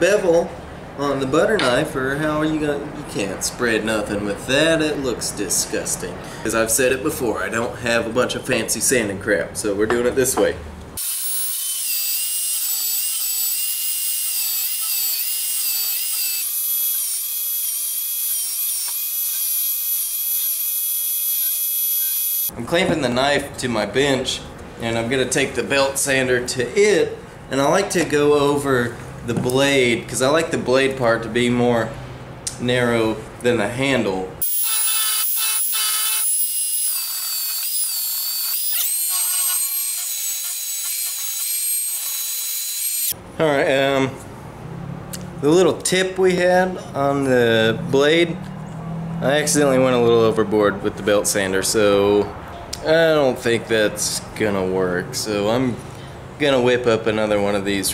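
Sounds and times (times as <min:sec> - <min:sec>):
belt sander motor whine: 0:11.0 - 0:22.5, 0:34.4 - 0:43.2.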